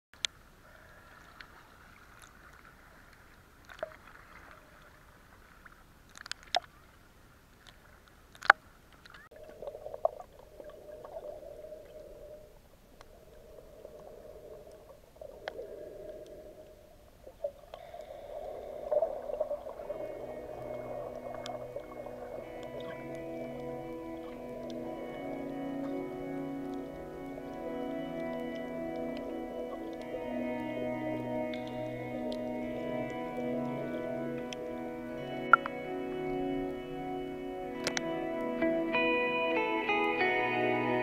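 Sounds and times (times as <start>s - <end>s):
muffled underwater swishing: 9.2s - 38.0s
music: 19.8s - 41.0s.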